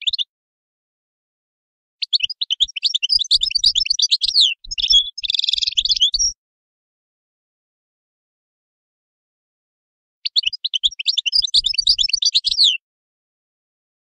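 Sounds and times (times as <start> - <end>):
bird twittering song: 0.0 - 0.3, 2.0 - 6.4, 10.2 - 12.8.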